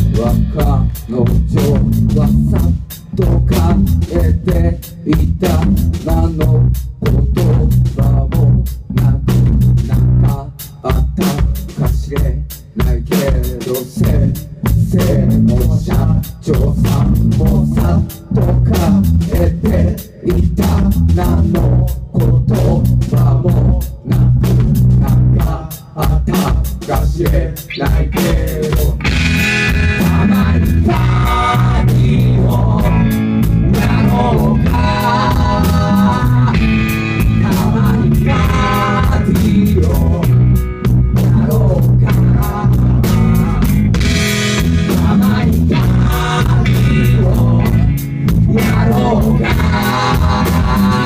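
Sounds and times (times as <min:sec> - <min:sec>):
live rock band playing: 0:00.0 - 0:51.0.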